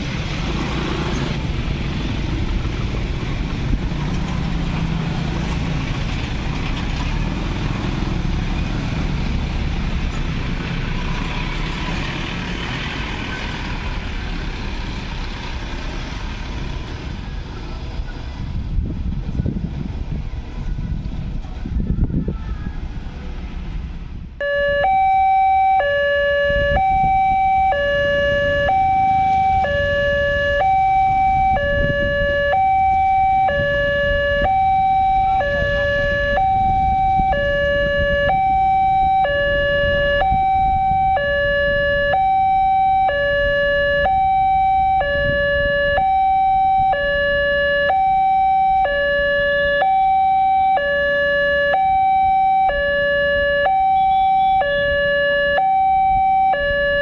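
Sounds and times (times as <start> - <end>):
level crossing alarm two-tone: 24.4 - 57.0.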